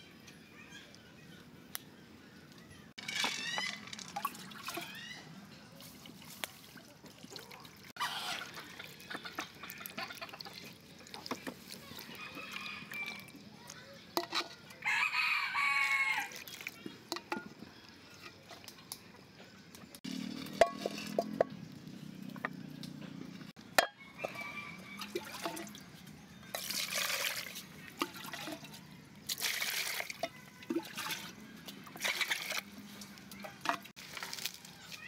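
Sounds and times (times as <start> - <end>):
water sloshing and splashing: 3.0 - 5.1, 5.7 - 13.3, 16.3 - 17.6, 24.2 - 35.0
rooster crowing: 12.0 - 13.3, 14.8 - 16.4, 23.9 - 25.4.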